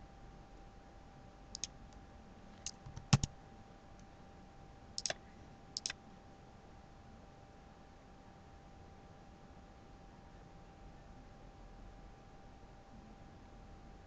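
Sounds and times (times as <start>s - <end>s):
computer mouse clicks: 1.5s - 1.7s, 2.6s - 3.3s, 5.0s - 5.2s, 5.8s - 6.0s
keyboard key presses: 2.6s - 3.3s, 5.0s - 5.2s.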